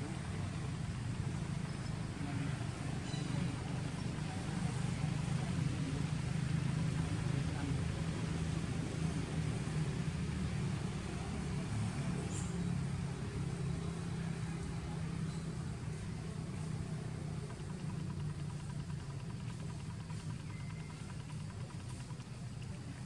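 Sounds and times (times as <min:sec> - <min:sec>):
engine humming: 0:00.0 - 0:23.0.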